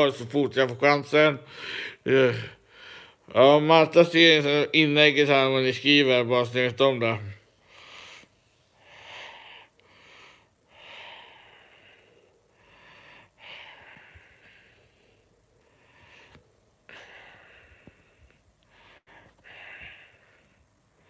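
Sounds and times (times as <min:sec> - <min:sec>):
man breathing: 0:01.4 - 0:03.3, 0:07.5 - 0:21.0.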